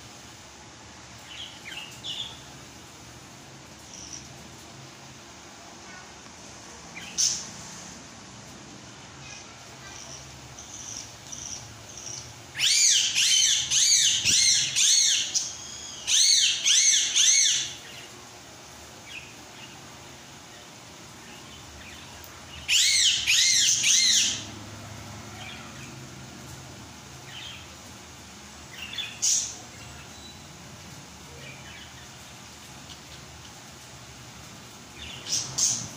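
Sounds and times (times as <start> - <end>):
background hiss: 0.0 - 35.9.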